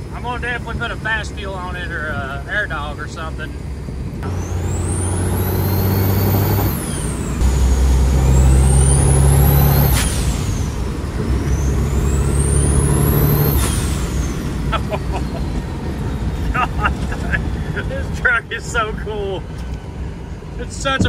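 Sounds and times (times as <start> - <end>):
deep diesel engine drone: 0.0 - 21.0
turbo whine: 2.9 - 17.4.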